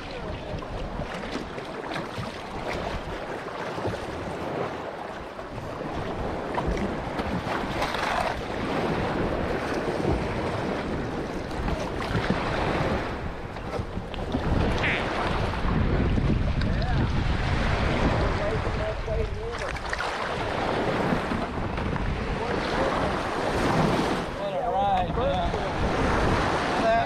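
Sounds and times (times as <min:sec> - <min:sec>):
water splashing against kayak: 0:00.0 - 0:27.0
wind buffeting microphone: 0:00.0 - 0:27.0.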